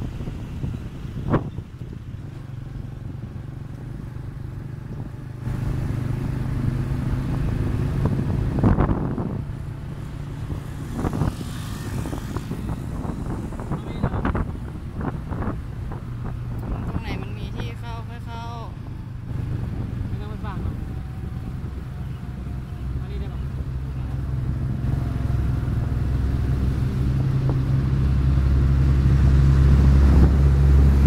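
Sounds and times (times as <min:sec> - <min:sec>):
small motorbike engine running: 0:10.3 - 0:14.4.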